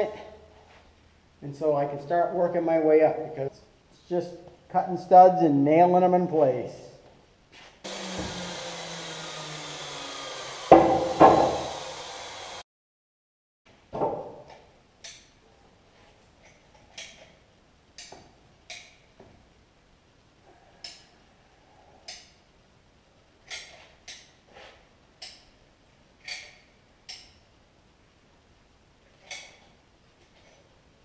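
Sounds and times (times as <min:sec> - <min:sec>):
dull knock: 0:10.7 - 0:11.6.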